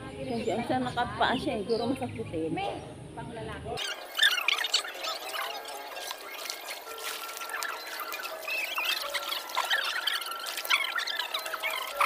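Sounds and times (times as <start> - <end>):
faint music: 0.0 - 12.0
pool water lapping and splashing: 3.9 - 12.0.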